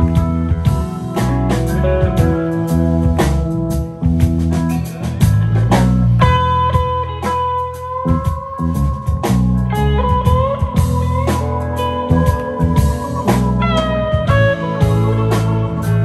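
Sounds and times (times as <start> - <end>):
bass guitar: 0.0 - 16.0
drum kit: 0.0 - 16.0
electric guitar lead: 0.0 - 16.0.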